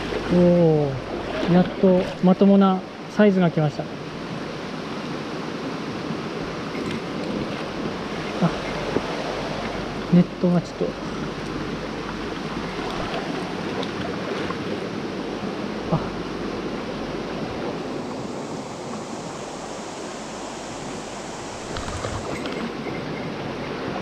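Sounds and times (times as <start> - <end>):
stream water over stones: 0.0 - 24.0.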